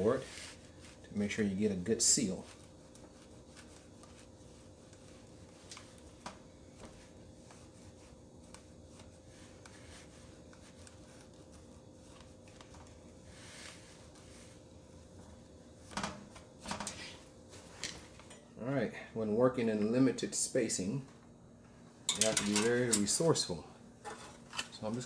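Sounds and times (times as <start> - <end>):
cloth rubbing on control panel: 0.0 - 18.2.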